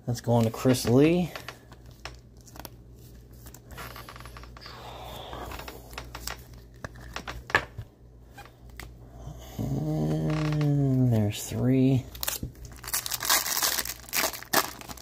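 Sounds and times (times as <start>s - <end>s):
plastic scraping and rustling: 0.2s - 4.7s.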